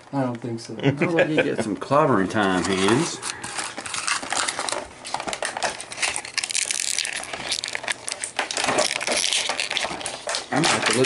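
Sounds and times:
plastic packaging crinkling: 1.8 - 11.0.

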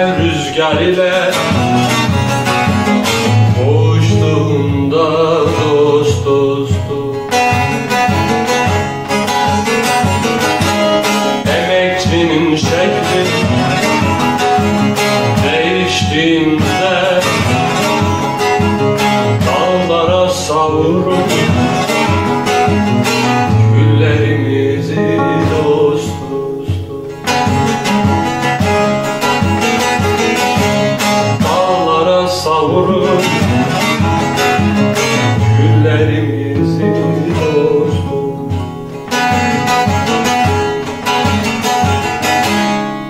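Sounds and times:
long-necked lute fast picking: 0.1 - 20.0, 20.8 - 31.7.

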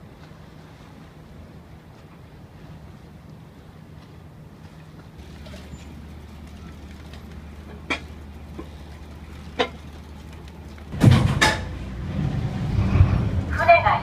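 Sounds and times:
diesel engine idling: 4.8 - 14.0
sharp knocks: 10.9 - 11.8.

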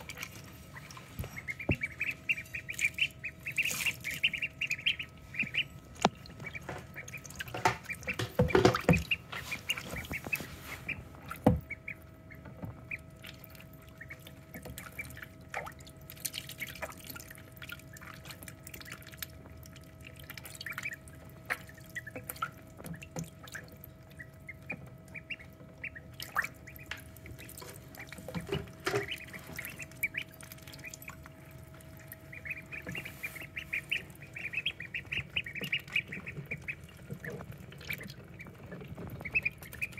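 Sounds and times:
ducklings peeping: 0.0 - 39.9
faint steady hum: 0.0 - 39.9
water splashing: 12.9 - 39.9.

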